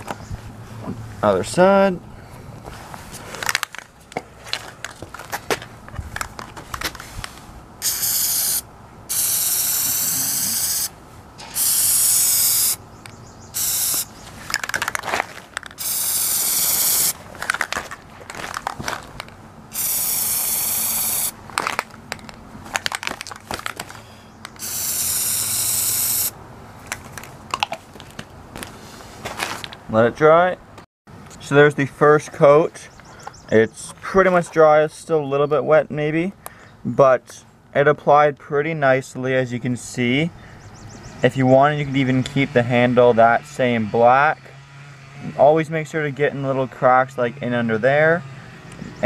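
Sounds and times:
aerosol can spraying: 0:07.8 - 0:12.8, 0:13.6 - 0:14.1, 0:15.8 - 0:17.2, 0:19.7 - 0:21.4, 0:24.6 - 0:26.3.

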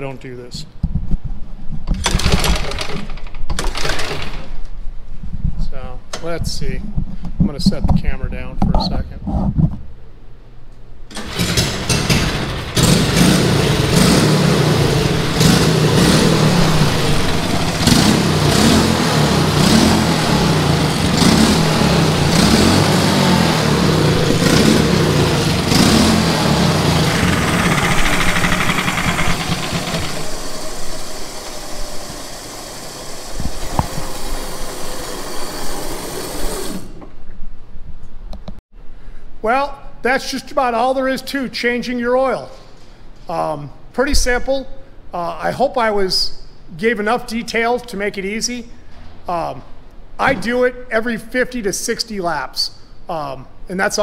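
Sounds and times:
kart engine revving: 0:11.1 - 0:37.0.

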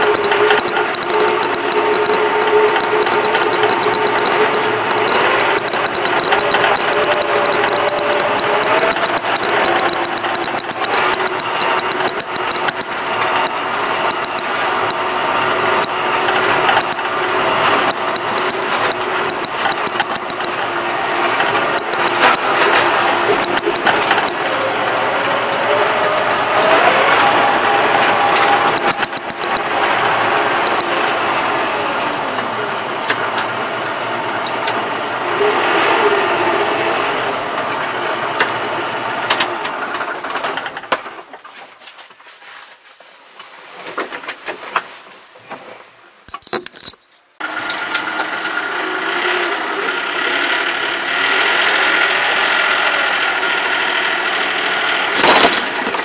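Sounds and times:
trailer rattles: 0:00.0 - 0:42.0
tractor engine running: 0:00.0 - 0:42.6, 0:46.2 - 0:56.0.

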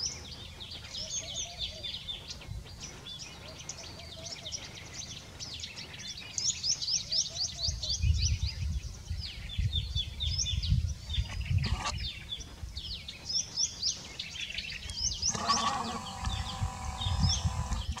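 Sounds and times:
small songbirds chirping: 0:00.0 - 0:18.0
animal bleating call: 0:15.3 - 0:18.0.

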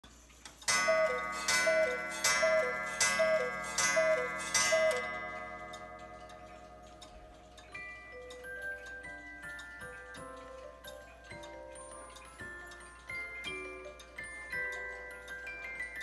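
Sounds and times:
clock ticking: 0:00.2 - 0:16.0
clock strike ringing: 0:00.7 - 0:10.8
cuckoo clock calls: 0:00.7 - 0:16.0.

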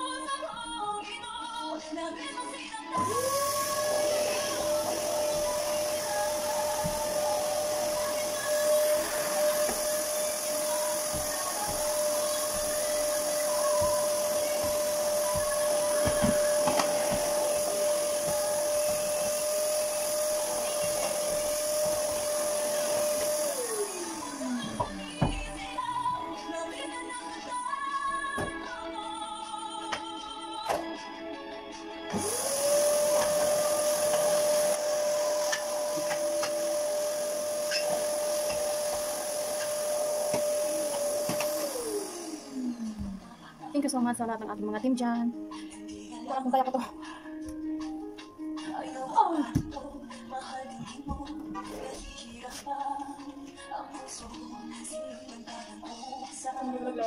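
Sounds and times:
vacuum cleaner running: 0:03.0 - 0:26.3, 0:32.0 - 0:44.5.

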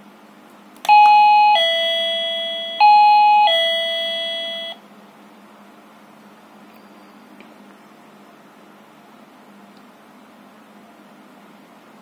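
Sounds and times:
two-note doorbell chime: 0:00.9 - 0:04.8.

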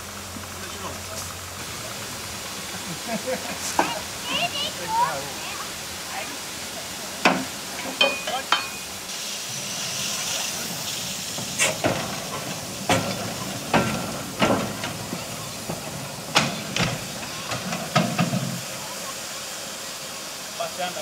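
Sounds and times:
steam hissing: 0:00.0 - 0:21.0
sharp metallic clanks and knocks: 0:07.2 - 0:08.9, 0:11.4 - 0:18.6.

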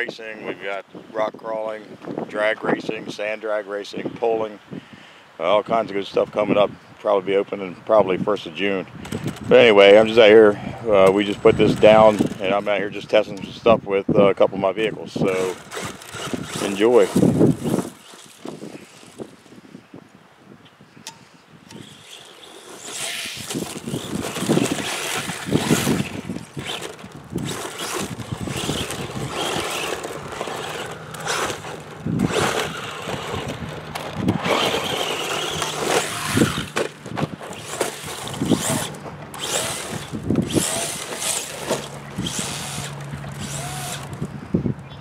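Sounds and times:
tyres scrabbling on loose dirt: 0:08.8 - 0:13.7, 0:14.3 - 0:19.7, 0:21.6 - 0:44.4
electric motor whining: 0:09.0 - 0:12.6, 0:15.2 - 0:19.6, 0:21.6 - 0:44.6.

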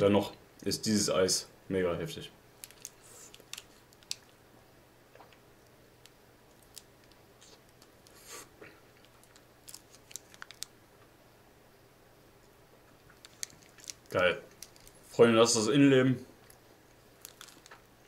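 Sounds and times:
ice cream bar crunching: 0:02.6 - 0:04.4, 0:06.5 - 0:08.3, 0:08.9 - 0:10.7, 0:13.0 - 0:15.2, 0:16.4 - 0:18.0.

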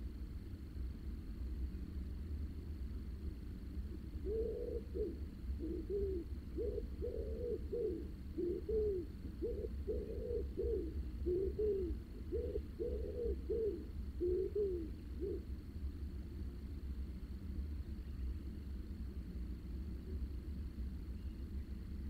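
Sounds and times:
steady low rumble: 0:00.0 - 0:22.0
pigeon cooing: 0:04.2 - 0:15.5.

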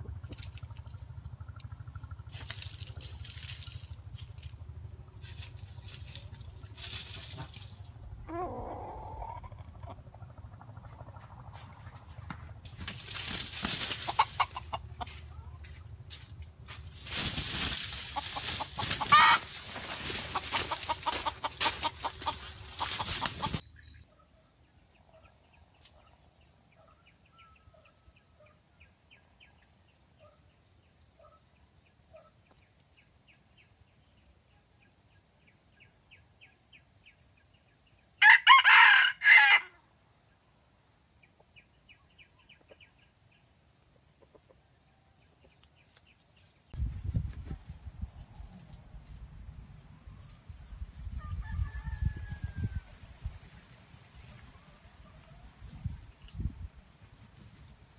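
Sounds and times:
wings flapping: 0:02.2 - 0:08.0, 0:11.3 - 0:15.0, 0:16.7 - 0:23.6
scuffling in dry leaves: 0:02.2 - 0:08.2, 0:11.5 - 0:23.6
rooster crowing: 0:19.1 - 0:19.5, 0:38.2 - 0:39.8, 0:51.2 - 0:52.9.

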